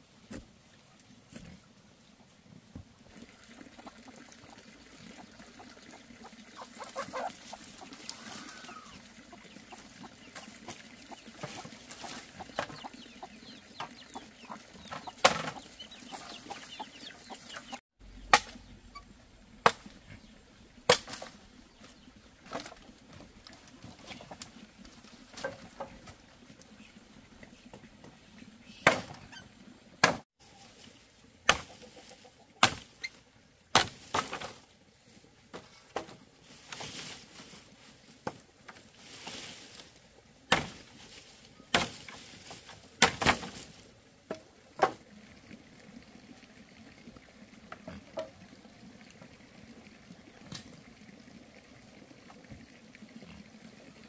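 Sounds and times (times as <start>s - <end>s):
chickens clucking: 3.2s - 19.2s, 31.5s - 32.6s.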